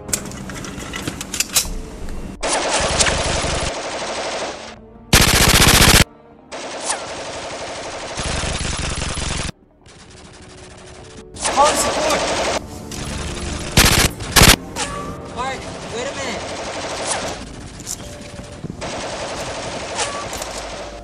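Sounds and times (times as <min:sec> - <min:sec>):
automatic rifle fire: 0:02.4 - 0:10.7, 0:13.6 - 0:14.6, 0:16.4 - 0:18.0, 0:18.8 - 0:21.0.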